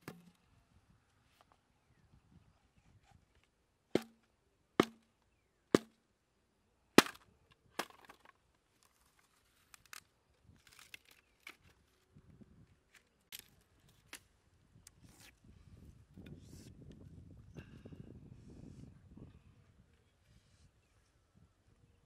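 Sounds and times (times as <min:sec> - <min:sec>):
blade chopping bamboo: 0:04.0 - 0:04.2, 0:04.8 - 0:05.0, 0:07.0 - 0:07.2
bamboo cracking apart: 0:07.0 - 0:12.0, 0:12.9 - 0:14.3.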